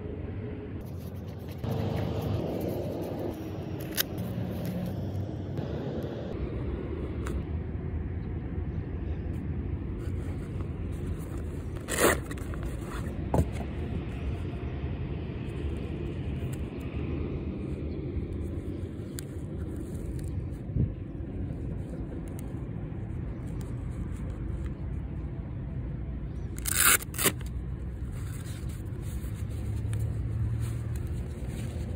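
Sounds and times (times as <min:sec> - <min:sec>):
distant traffic rumble: 0:00.0 - 0:31.9.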